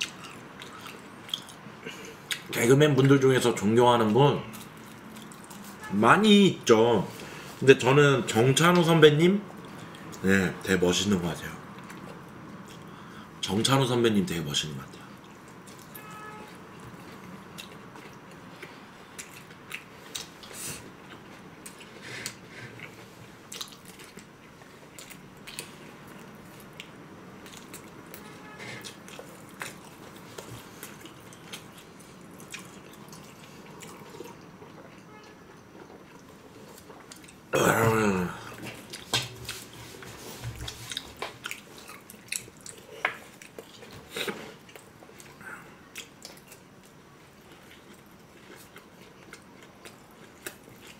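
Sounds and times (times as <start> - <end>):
chewing: 0.0 - 2.5, 4.4 - 5.8, 16.7 - 37.5, 38.5 - 50.9.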